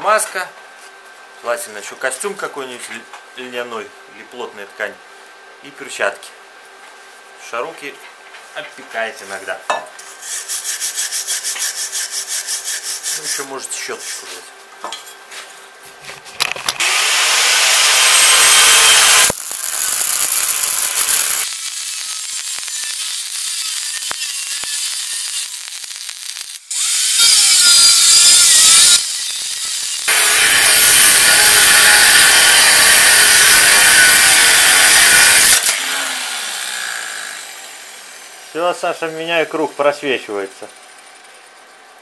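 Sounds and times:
welding arc crackling and hissing: 16.8 - 35.8.

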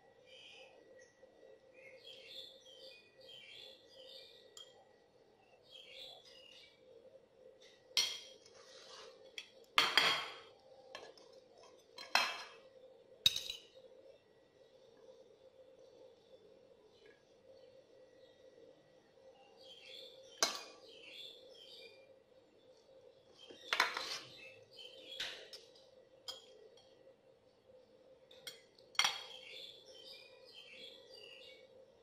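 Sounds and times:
metal fork clinking on bowls: 26.3 - 26.5.

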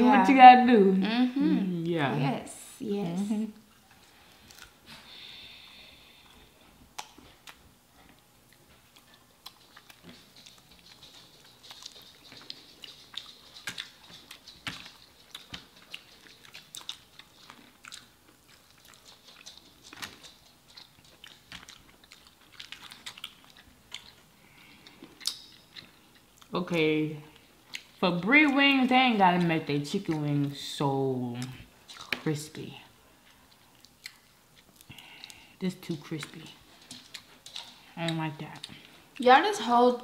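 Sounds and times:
people chewing crispy chicken: 3.7 - 26.5, 31.4 - 32.3, 32.9 - 39.2
wet mouth clicks: 7.0 - 7.6, 24.9 - 26.5.

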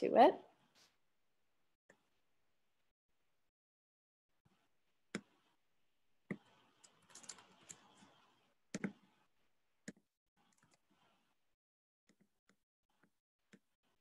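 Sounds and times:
computer keyboard typing: 6.8 - 8.0.

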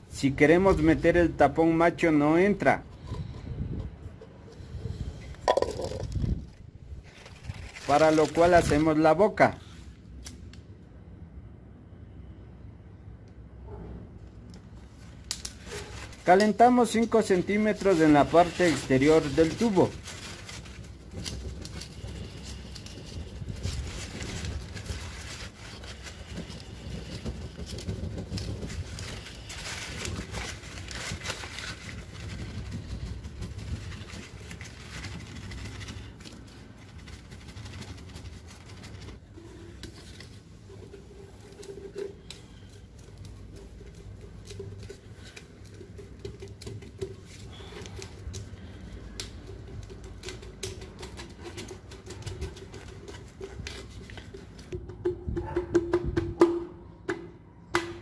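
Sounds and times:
clicks and rubbing of pipe: 2.8 - 8.7, 14.5 - 56.5
paper crinkling: 5.8 - 9.0, 15.0 - 54.7
burning paper crackling: 5.9 - 10.4, 14.8 - 54.7.

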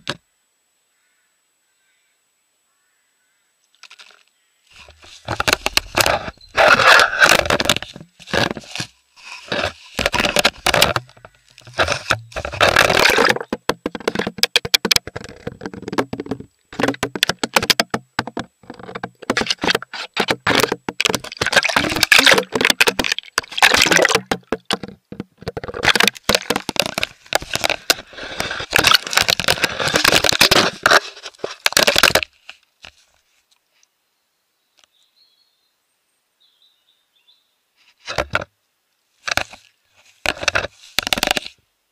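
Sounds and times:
crackling and scraping on microphone: 3.7 - 33.9, 37.8 - 38.5, 39.2 - 41.7.

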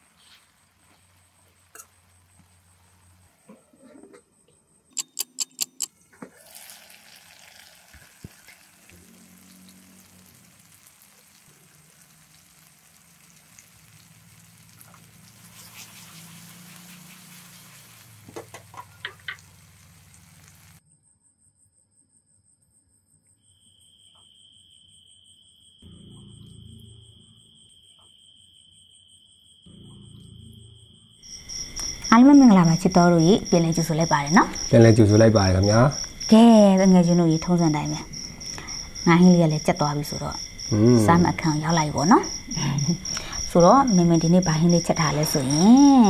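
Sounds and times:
sauce simmering and sizzling: 0.0 - 3.5, 6.1 - 20.8, 31.2 - 46.0
sharp clicks: 4.9 - 6.0.

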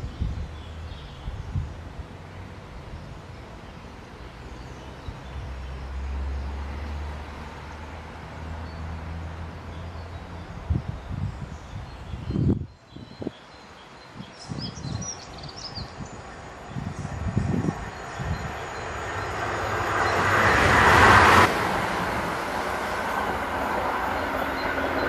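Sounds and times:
birds chirping: 9.7 - 21.4
electric train hum: 15.9 - 25.0.

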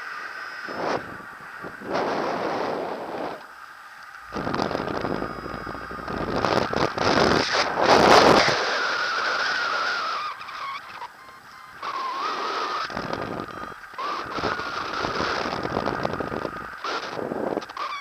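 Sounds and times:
wind on microphone: 0.6 - 3.6, 4.2 - 18.0
thin wavering whistle: 4.3 - 17.0.

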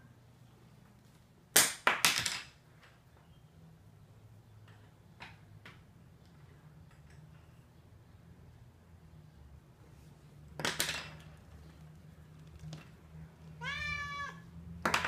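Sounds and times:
pencil clattering on wooden floor: 1.9 - 2.6, 10.5 - 13.0.

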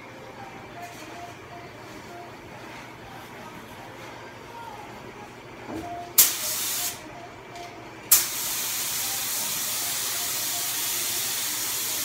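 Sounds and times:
paint spray gun hissing: 6.2 - 7.0, 8.1 - 12.0.

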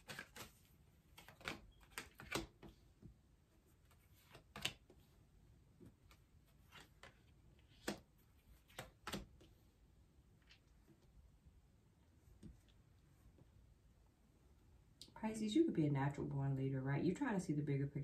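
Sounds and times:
cards clicking and tapping: 0.0 - 2.8, 3.9 - 5.0, 5.8 - 9.5.

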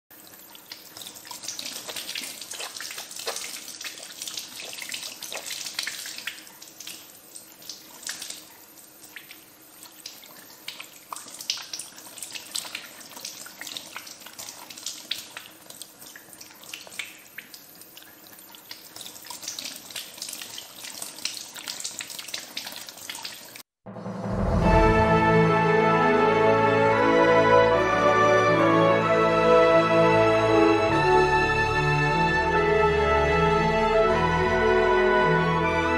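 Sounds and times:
tap water running: 0.1 - 23.7
hands rubbing and splashing in water: 0.6 - 23.6.

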